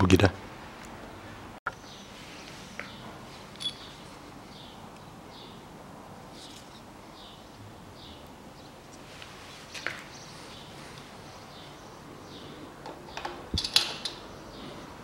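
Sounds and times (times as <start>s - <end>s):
small birds chirping: 1.7s - 3.1s, 3.7s - 5.7s, 6.3s - 9.0s, 9.6s - 13.4s, 14.2s - 15.0s.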